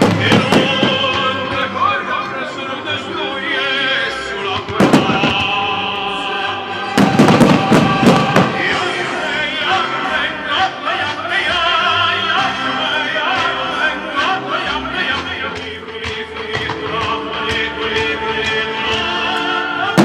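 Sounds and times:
operatic singing: 0.0s - 20.0s
orchestral music: 0.0s - 20.0s
firework crackles: 4.7s - 5.6s, 7.0s - 9.0s
firework shells bursting: 4.7s - 5.6s, 7.0s - 8.8s.

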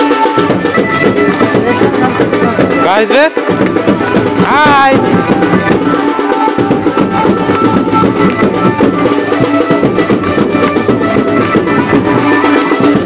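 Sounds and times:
dance music with drums: 0.0s - 13.0s.

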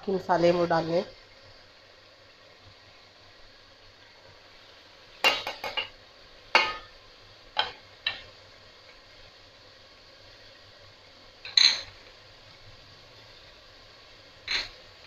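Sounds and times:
plate knocking on metal pot: 5.2s - 5.9s, 6.5s - 6.9s.

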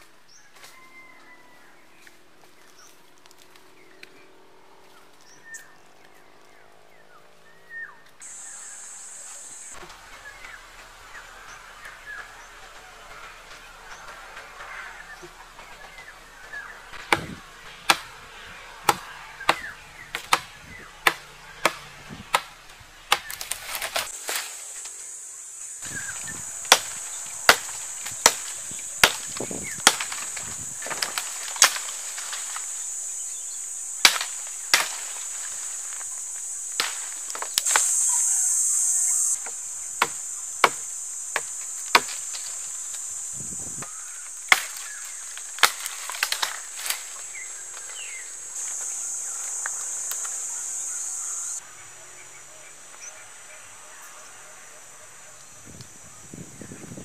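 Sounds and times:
sharp chopping knocks: 17.0s - 18.1s, 18.9s - 20.5s, 21.1s - 22.5s, 23.1s - 24.1s, 26.0s - 32.7s, 34.0s - 36.0s, 36.8s - 38.0s, 39.4s - 42.6s, 43.8s - 45.0s
high-pitched insect buzz: 23.7s - 51.6s.

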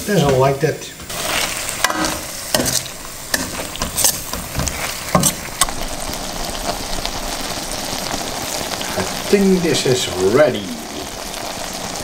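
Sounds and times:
food sizzling in a wok: 0.0s - 12.0s
metal spatula scraping pan: 1.1s - 5.7s.

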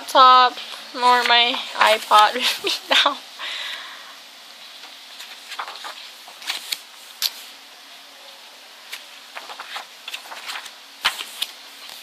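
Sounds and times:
steady hiss: 0.0s - 12.0s
book pages rustling: 0.6s - 2.4s, 4.8s - 7.5s, 8.8s - 12.0s.

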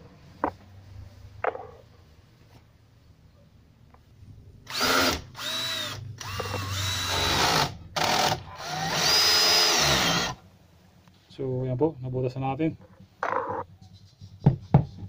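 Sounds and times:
power drill drilling into metal: 4.7s - 10.4s.

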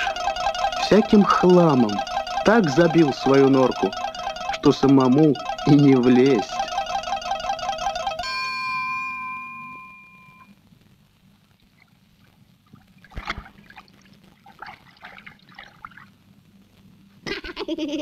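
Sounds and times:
cartoon music: 0.0s - 10.4s.

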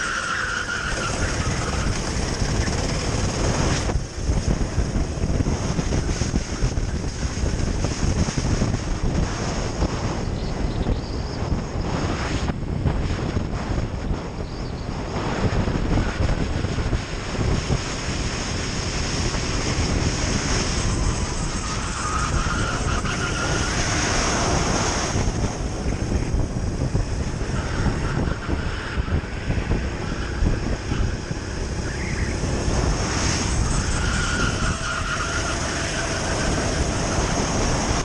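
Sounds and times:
kart engine running under load: 0.0s - 8.8s, 30.6s - 38.0s
wind buffeting microphone: 0.0s - 38.0s.

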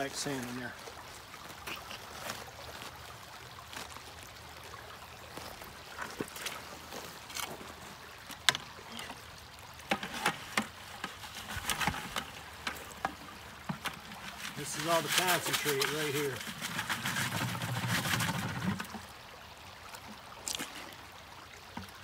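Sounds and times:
shallow creek running: 0.0s - 22.0s
grit scraping in plastic pan: 13.7s - 18.8s.

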